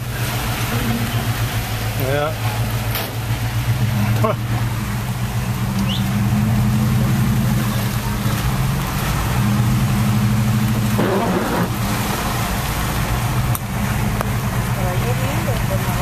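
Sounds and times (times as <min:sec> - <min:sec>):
car engine humming: 0:00.0 - 0:16.0
rain: 0:00.0 - 0:16.0
tyre noise on wet road: 0:00.0 - 0:16.0
windshield wiper swish: 0:10.7 - 0:14.3.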